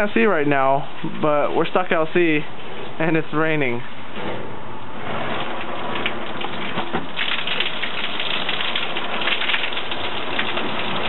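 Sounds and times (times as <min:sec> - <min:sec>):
water spattering on umbrella: 0:05.3 - 0:11.0.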